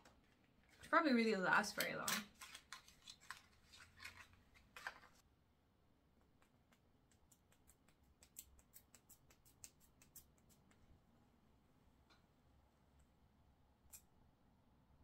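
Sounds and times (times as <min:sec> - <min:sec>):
paper handling noises: 0:02.1 - 0:05.2.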